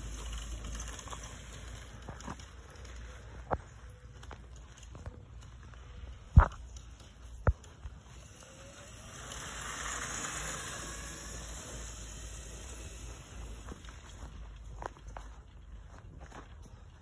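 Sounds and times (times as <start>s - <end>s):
electric dirt bike motor whine: 0.0s - 3.5s, 6.2s - 14.7s.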